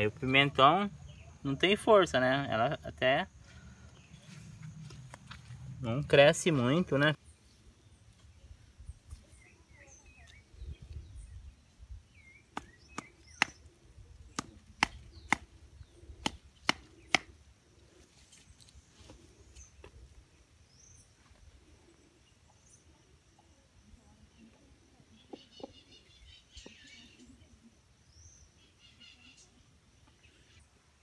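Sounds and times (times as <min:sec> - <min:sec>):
birds chirping faintly: 0:00.0 - 0:31.0.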